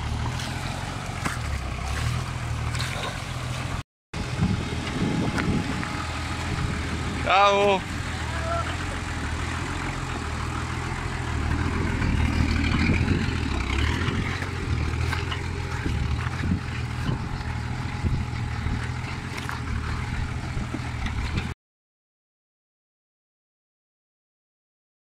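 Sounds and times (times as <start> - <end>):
stones crunching under tyres: 0.0 - 3.8, 9.7 - 21.5
truck engine running: 0.0 - 21.6.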